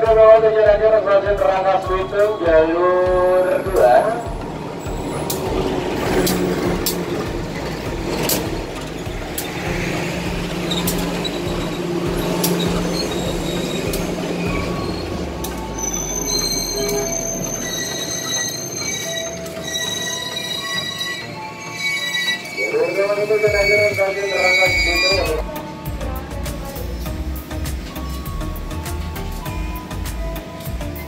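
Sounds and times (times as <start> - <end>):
train wheels knocking: 0.0 - 20.9
train rumbling: 0.0 - 31.0
train brakes squealing: 1.4 - 26.0.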